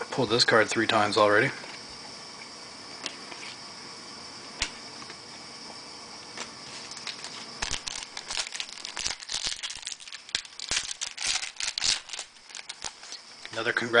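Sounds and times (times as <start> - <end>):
foil wrapper crinkling: 6.8 - 13.5.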